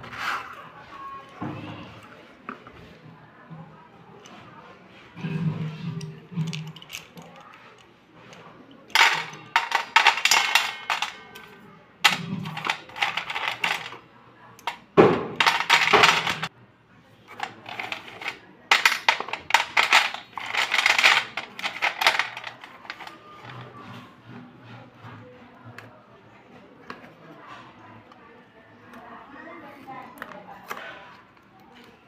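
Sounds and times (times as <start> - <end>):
pencils clattering on metal plate: 5.2 - 14.0, 14.6 - 16.5, 17.3 - 24.0.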